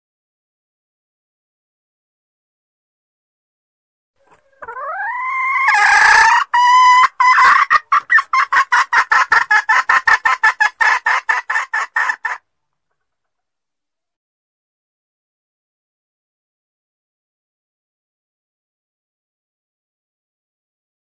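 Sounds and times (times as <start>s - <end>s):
junglefowl hen calling: 4.2s - 12.4s.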